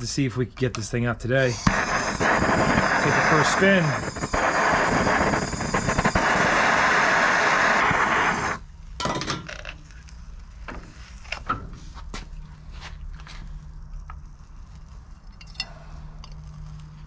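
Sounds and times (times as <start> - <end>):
gas torch flame hissing: 1.2 - 8.7.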